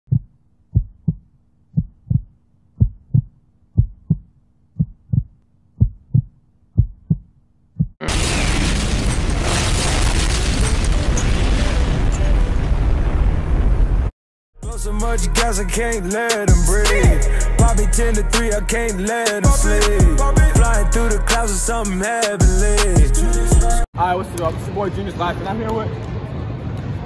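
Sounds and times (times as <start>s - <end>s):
heartbeat double thump: 0.1s - 8.0s
loud explosion blast: 8.0s - 14.1s.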